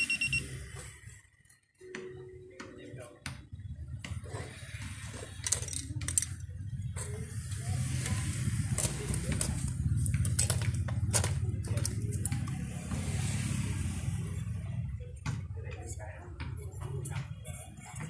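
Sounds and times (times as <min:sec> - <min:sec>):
metal clicks and taps on workbench: 0:08.8 - 0:12.6.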